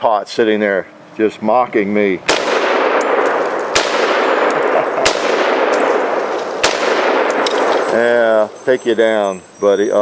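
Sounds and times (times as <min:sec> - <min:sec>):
rifle shots echoing: 0:02.3 - 0:08.3
bullets clanging on steel targets: 0:02.8 - 0:08.1.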